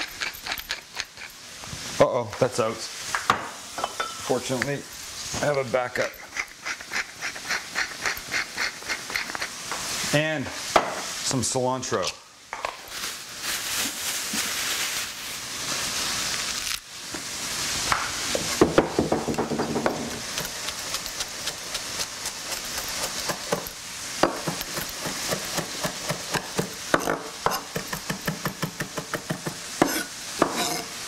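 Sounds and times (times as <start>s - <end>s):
meat sizzling in a pan: 0.0s - 31.0s
plastic bag rustling: 12.8s - 16.9s
knife chopping on wooden board: 17.9s - 30.8s.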